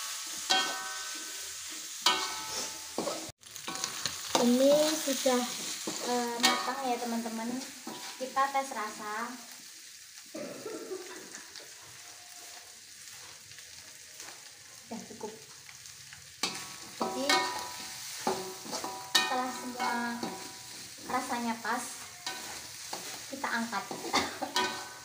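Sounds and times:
fish sizzling in a wok: 0.0 - 25.0
metal spatula scraping: 0.1 - 8.4, 16.4 - 25.0.

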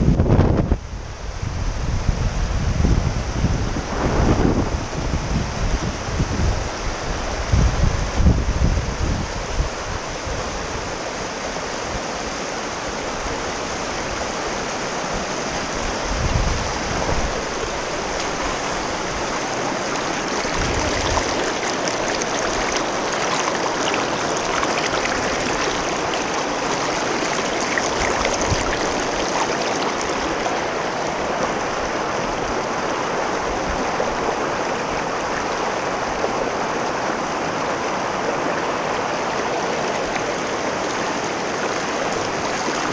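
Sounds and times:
river rapids rushing over rocks: 9.2 - 42.9.

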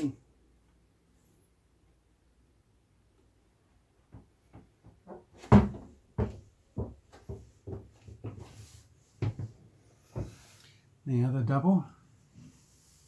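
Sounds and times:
footsteps and thumps in cabin: 4.1 - 8.6, 9.2 - 10.4.

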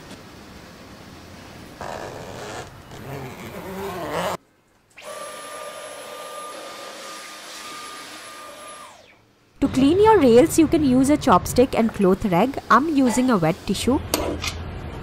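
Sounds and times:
handheld vacuum cleaner whine: 5.0 - 9.2.

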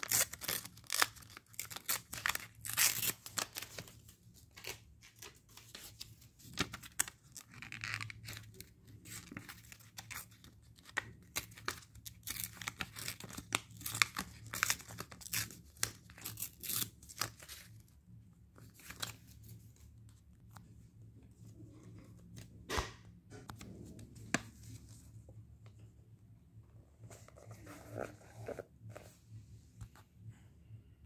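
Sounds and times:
paper crackling and rustling: 0.0 - 17.7.

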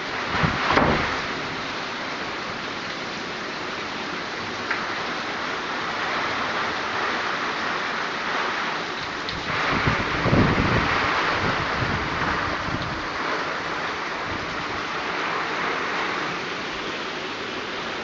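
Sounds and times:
heavy rain pouring: 0.0 - 18.0
water running off awning: 0.0 - 18.0
wind buffeting microphone: 0.2 - 1.4, 9.3 - 14.9.

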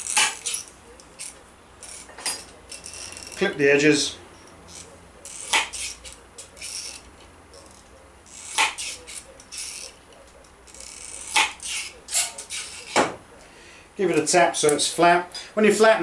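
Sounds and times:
metal snips cutting sheet metal: 0.0 - 3.5, 4.6 - 13.2
light scraping and handling: 0.0 - 13.5.

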